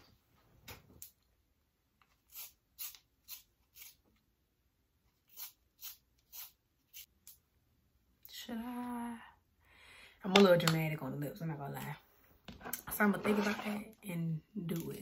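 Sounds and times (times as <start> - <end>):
pencil sharpener scraping: 5.2 - 7.1.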